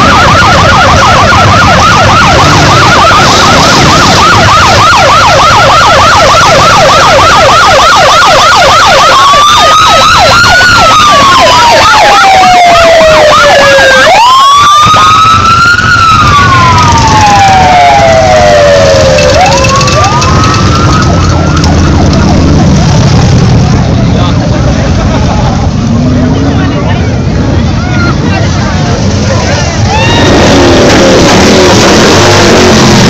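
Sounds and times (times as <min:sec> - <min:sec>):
motorcycle engines running: 0:00.0 - 0:14.2, 0:15.0 - 0:33.0
siren yelping and wailing: 0:00.0 - 0:23.9, 0:29.0 - 0:33.0.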